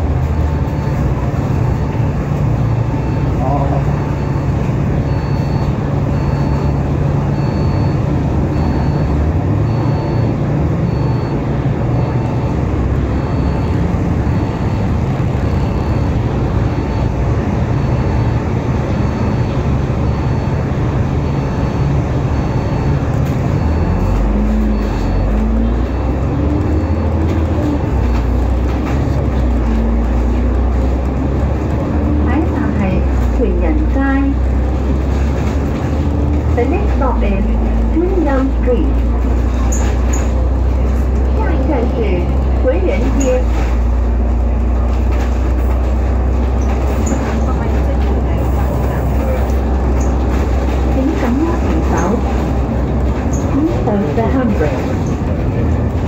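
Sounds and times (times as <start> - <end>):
bus engine hum: 0.0 - 56.0.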